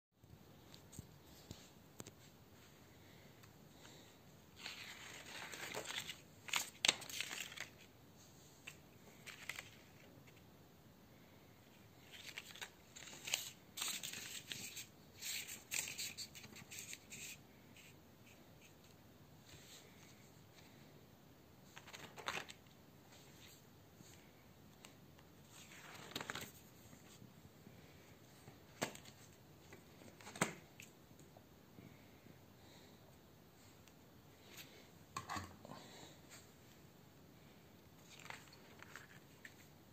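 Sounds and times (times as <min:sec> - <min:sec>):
stiff paper rustling: 0:03.9 - 0:07.9, 0:21.6 - 0:27.2.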